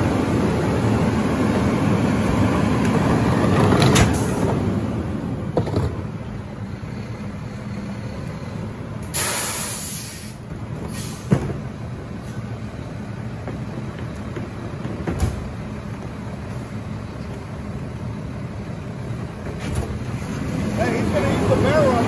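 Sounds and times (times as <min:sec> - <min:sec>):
garbage truck diesel engine: 0:00.0 - 0:22.0
air release hiss: 0:09.0 - 0:11.3
thump: 0:11.2 - 0:11.6.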